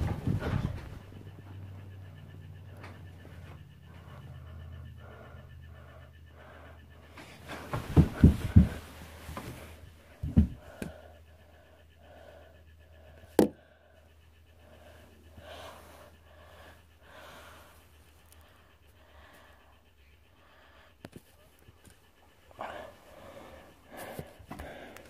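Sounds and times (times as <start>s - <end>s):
child breathing softly: 0.0s - 21.5s, 22.4s - 25.0s
handling thumps: 7.4s - 10.9s.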